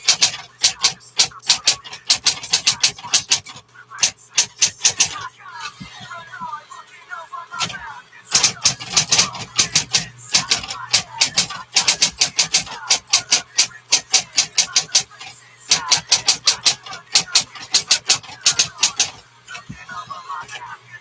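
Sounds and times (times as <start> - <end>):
typewriter key strikes: 0.0 - 5.2, 8.3 - 15.1, 15.7 - 19.2
typewriter motor hum: 0.0 - 5.3, 7.6 - 19.7.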